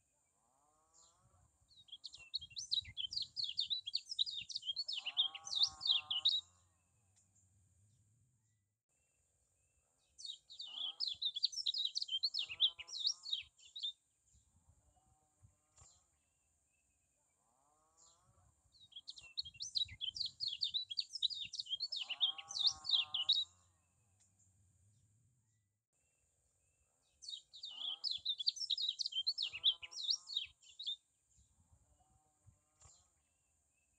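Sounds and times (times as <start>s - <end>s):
bird twittering chatter: 2.1s - 6.4s, 10.5s - 13.9s, 18.9s - 23.4s, 27.5s - 31.0s.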